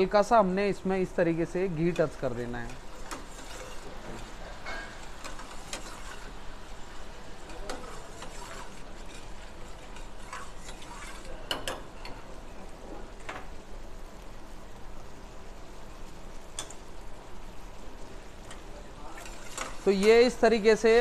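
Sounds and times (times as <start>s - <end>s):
gravy simmering and sizzling: 0.0s - 21.0s
ladle scraping and clinking in pan: 1.9s - 6.5s, 7.4s - 12.2s, 18.5s - 20.4s.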